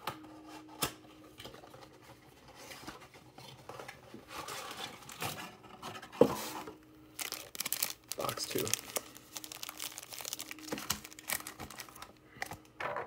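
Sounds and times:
cards and packaging rustling: 6.2s - 13.0s.

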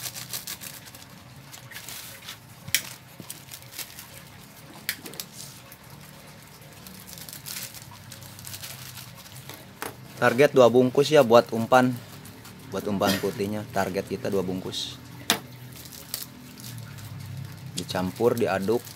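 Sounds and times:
plastic sachets crinkling: 0.0s - 5.6s, 6.5s - 14.8s, 15.6s - 18.9s.

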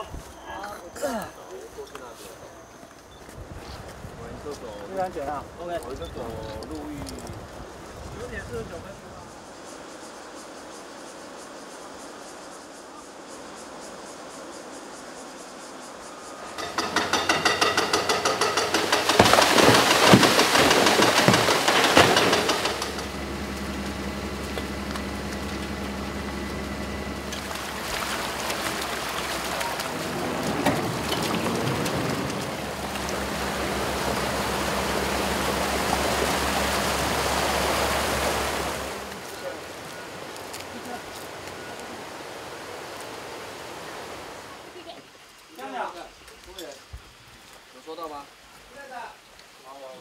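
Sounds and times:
faint outdoor background: 0.0s - 50.0s
excavator mechanical clatter: 16.4s - 39.2s
floodwater rushing over rocks: 16.4s - 50.0s.

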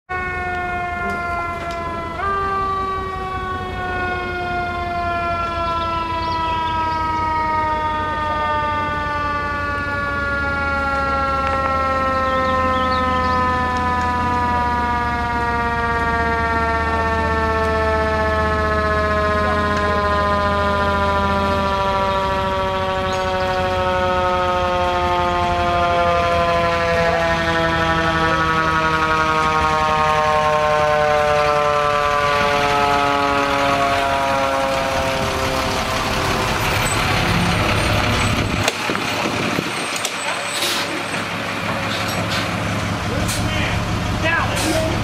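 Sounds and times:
fire engine siren wailing: 0.0s - 45.0s
truck engine rumble: 0.1s - 45.0s.

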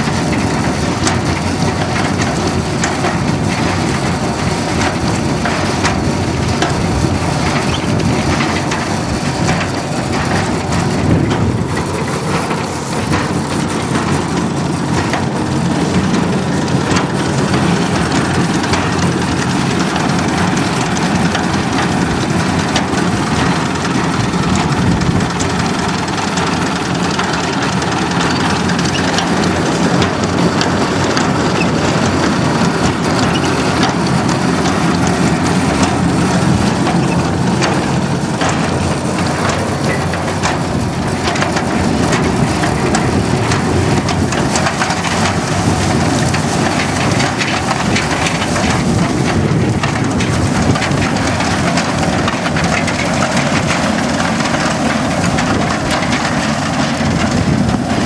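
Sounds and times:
hay turner rattling: 0.0s - 58.0s
tractor running: 0.0s - 58.0s.

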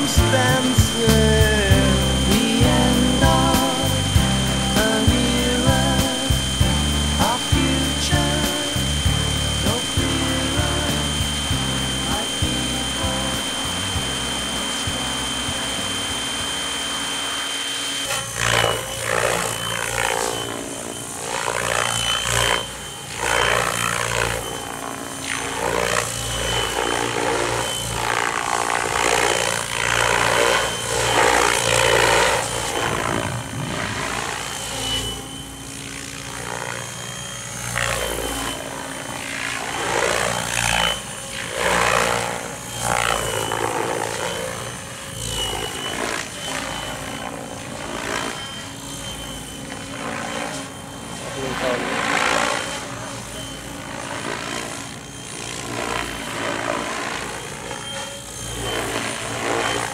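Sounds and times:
helicopter rotor blades buzzing: 0.0s - 59.9s
high steady motor whine: 0.0s - 59.9s.

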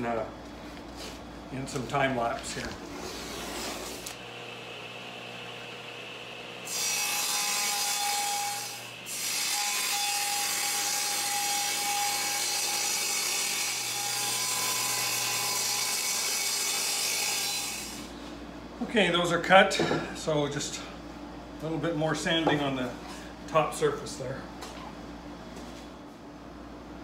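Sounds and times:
table saw cutting wood: 3.0s - 18.1s.

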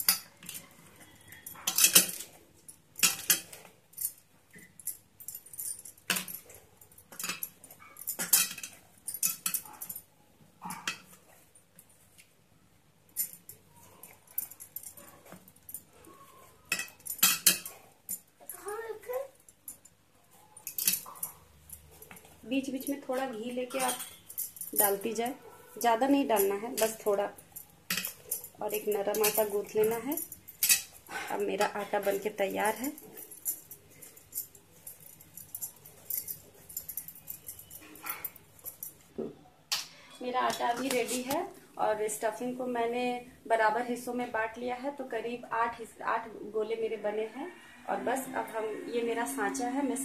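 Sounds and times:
sharp metallic clinks: 13.1s - 39.0s
hands kneading dough on steel plate: 40.3s - 41.5s.

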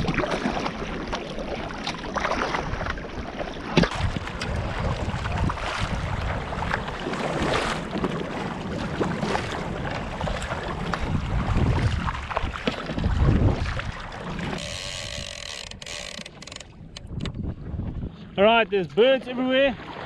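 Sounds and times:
paddle strokes: 0.0s - 18.3s
wind rumbling on microphone: 0.0s - 19.0s
water sloshing against kayak: 0.0s - 20.0s.

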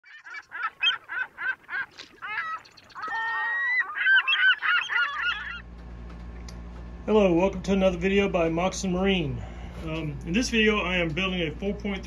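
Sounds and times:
birds calling: 0.0s - 6.5s.

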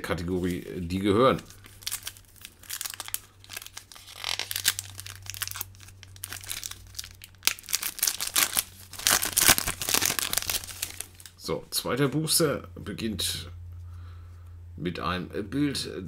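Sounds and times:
foil wrapper crinkling and tearing: 0.3s - 11.4s.

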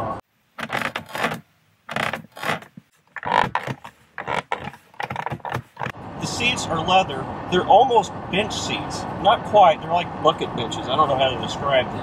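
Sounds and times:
fingers scraping hard plastic: 0.6s - 6.0s.

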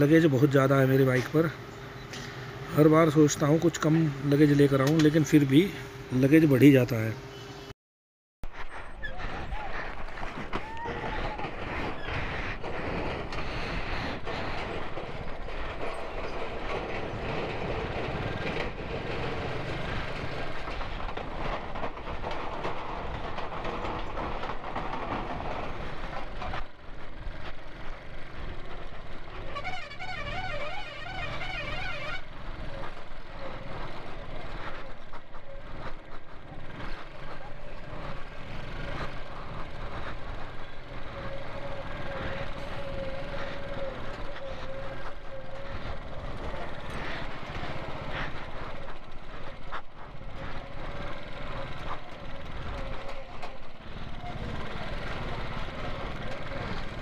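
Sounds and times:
rattles and knocks: 9.3s - 57.0s
motorcycle engine: 12.7s - 57.0s.

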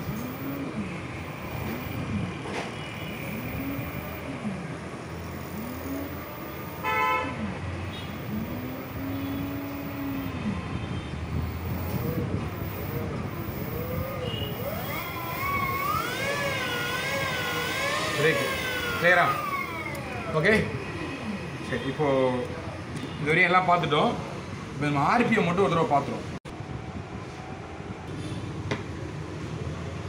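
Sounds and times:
horn-like tone: 6.7s - 11.0s
electric motor whining: 11.6s - 21.4s.

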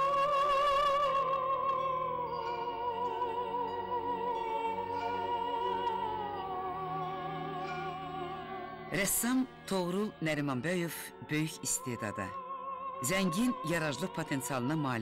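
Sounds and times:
operatic voice singing: 0.0s - 15.0s.

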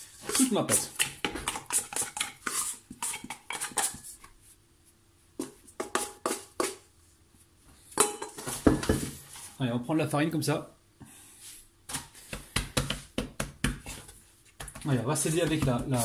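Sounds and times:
scraper knocking on steel bowl: 5.4s - 6.8s.

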